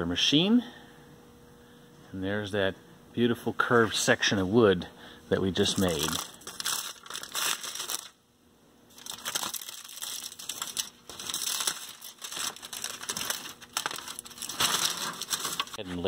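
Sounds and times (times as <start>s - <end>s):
aluminium foil crinkling: 5.6s - 8.2s, 8.9s - 16.0s.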